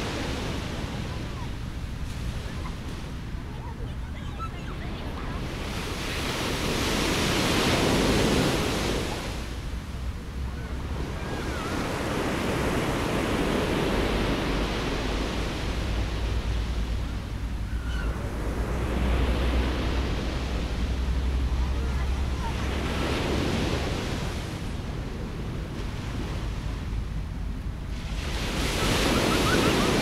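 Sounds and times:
sea surf breaking on shore: 0:00.0 - 0:30.0.

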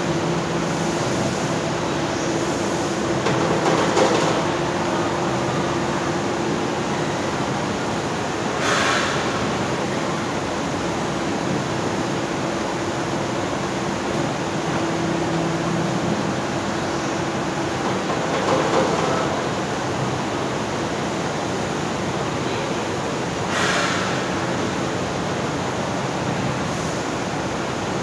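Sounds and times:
brief hiss: 0:08.6 - 0:09.4, 0:23.5 - 0:24.2.

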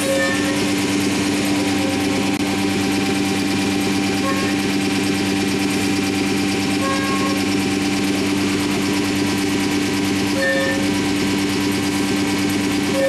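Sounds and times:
cnc router humming: 0:00.0 - 0:13.0
brief higher tone: 0:04.2 - 0:04.6, 0:06.8 - 0:07.4.

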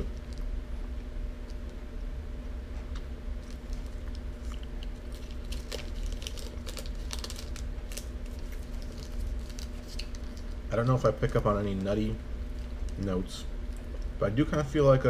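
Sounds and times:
chewing: 0:03.4 - 0:07.2
foil wrapper crinkling: 0:03.4 - 0:13.4.

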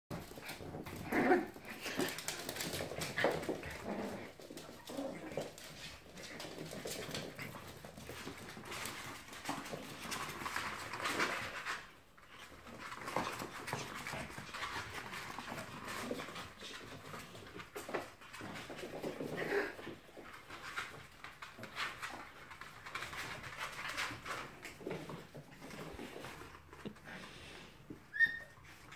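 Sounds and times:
paws clicking on tiled floor: 0:00.1 - 0:28.9
puppies whimpering: 0:28.0 - 0:28.9.

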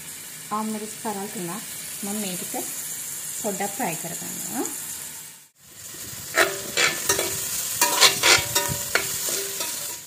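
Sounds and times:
vegetables sizzling in hot oil: 0:00.0 - 0:10.0
metal spoon scraping a pan: 0:06.3 - 0:10.0.

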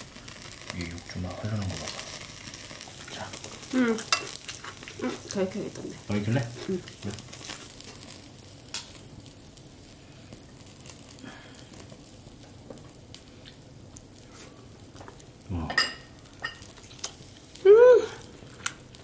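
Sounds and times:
meat sizzling on grill: 0:00.0 - 0:19.0
person humming: 0:17.6 - 0:18.2.

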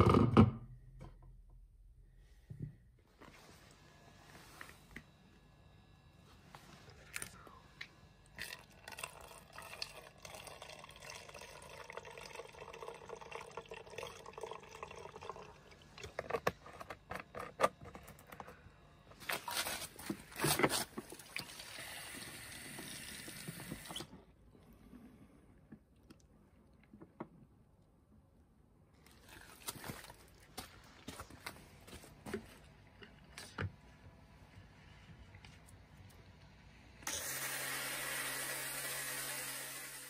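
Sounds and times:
tap water running into bottle: 0:08.4 - 0:16.6, 0:21.0 - 0:24.1.

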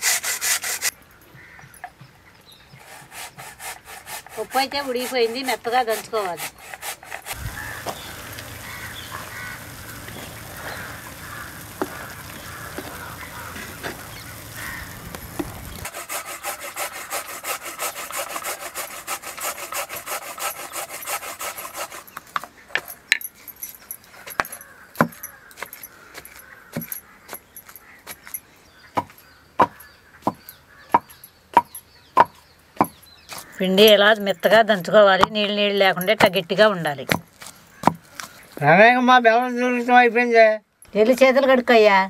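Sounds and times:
grating on a hand grater: 0:00.0 - 0:00.9, 0:02.8 - 0:07.4, 0:15.8 - 0:22.1
pestle pounding in stone mortar: 0:29.0 - 0:33.0, 0:35.1 - 0:36.4, 0:37.0 - 0:38.0.

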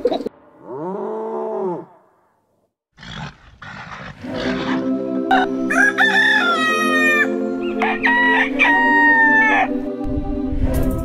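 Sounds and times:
background music: 0:04.2 - 0:11.0
rooster crowing: 0:05.3 - 0:09.7.

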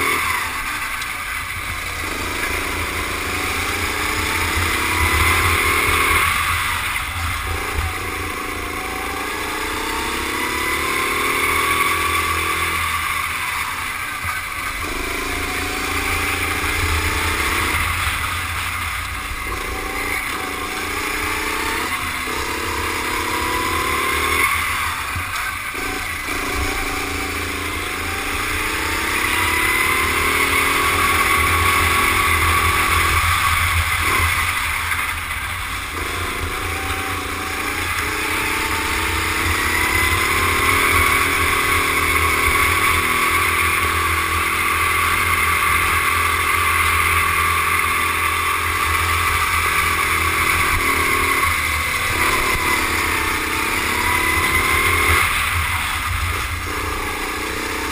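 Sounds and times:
go-kart engine revving: 0:00.0 - 0:57.9.

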